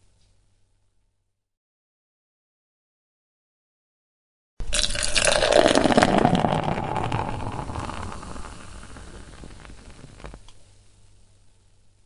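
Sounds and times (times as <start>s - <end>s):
beer foam fizzing: 4.6s - 10.5s
beer pouring into a glass: 4.6s - 10.5s.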